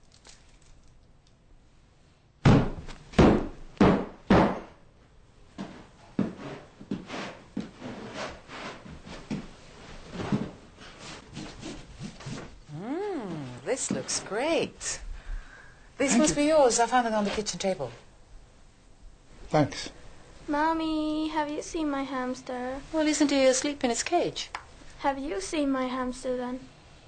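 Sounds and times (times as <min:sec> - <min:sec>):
heavy footfalls on a floor: 0:02.4 - 0:04.7, 0:05.6 - 0:07.8.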